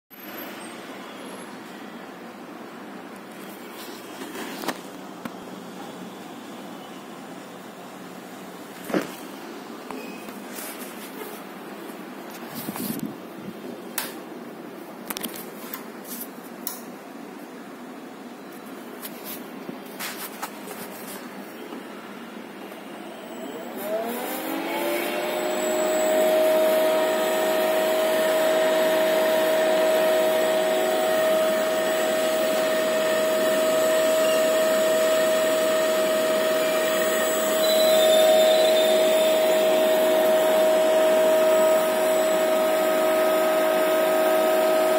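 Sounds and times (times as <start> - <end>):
electric motor whine: 23.0 - 44.9.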